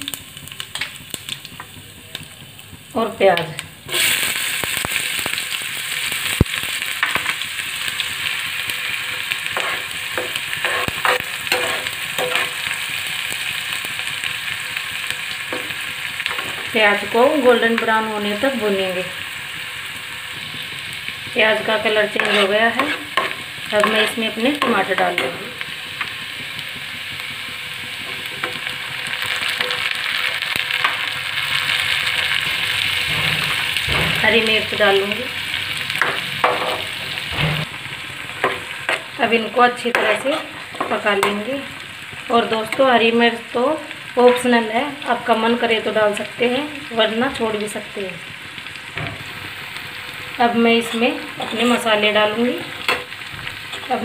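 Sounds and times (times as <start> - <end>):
onions sizzling in hot oil: 0.0 - 54.0
wooden spoon scraping pan: 22.2 - 24.6, 50.9 - 51.9.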